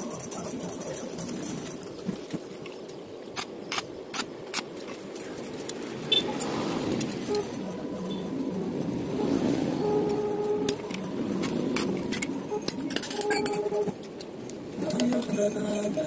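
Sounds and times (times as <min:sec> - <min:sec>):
metal pipes clinking together: 0:10.1 - 0:13.8.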